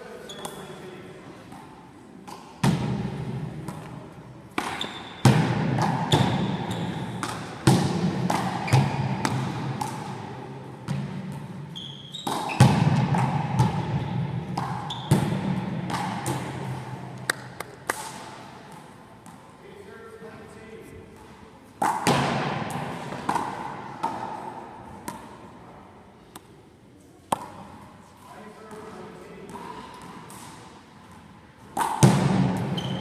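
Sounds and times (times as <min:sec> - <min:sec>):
ball smacks echoing in hall: 0:00.3 - 0:33.0
trainers squeaking on floor: 0:04.7 - 0:05.2, 0:11.7 - 0:12.6, 0:14.9 - 0:15.1, 0:32.7 - 0:33.0.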